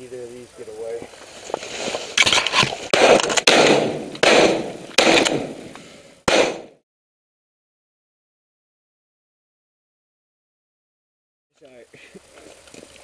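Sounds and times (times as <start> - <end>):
shotguns firing: 2.9 - 6.8.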